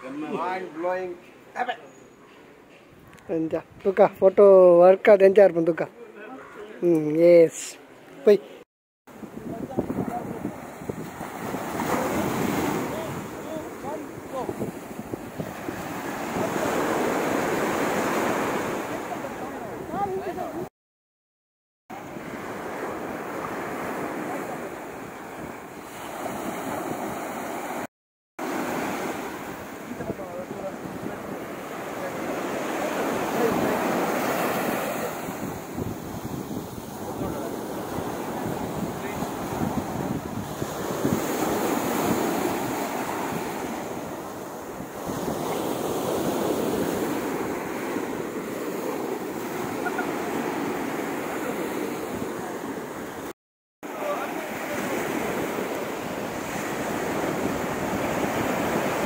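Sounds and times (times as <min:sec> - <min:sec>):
wind buffeting microphone: 0:09.1 - 0:17.8, 0:35.2 - 0:49.3
surf breaking on beach: 0:09.2 - 0:20.6, 0:21.9 - 0:59.0.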